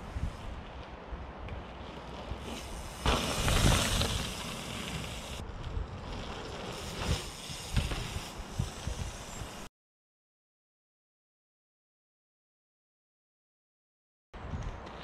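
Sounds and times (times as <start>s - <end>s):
wind buffeting microphone: 0.0s - 9.7s.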